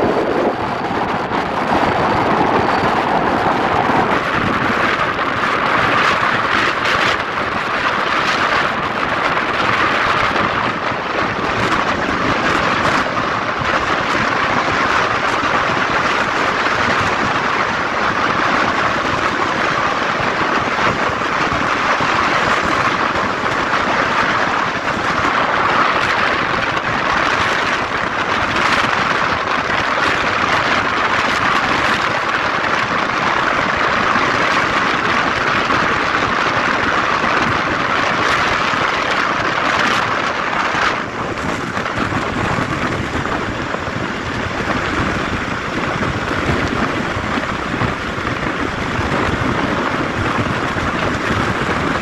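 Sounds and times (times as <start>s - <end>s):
wind rushing: 0.0s - 52.0s.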